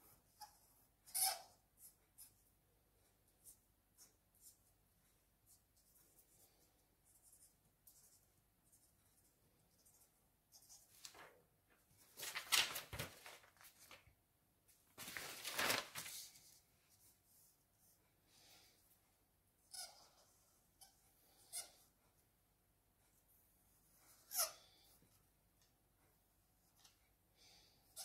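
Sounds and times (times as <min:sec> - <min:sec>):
paper rustling and sliding: 0:10.9 - 0:11.4, 0:12.0 - 0:14.1, 0:14.9 - 0:16.6.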